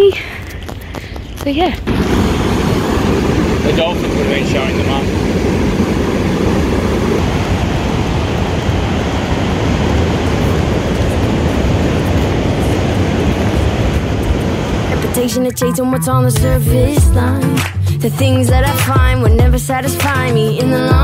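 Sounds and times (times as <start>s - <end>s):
ocean surf breaking on rocks: 1.4s - 17.7s.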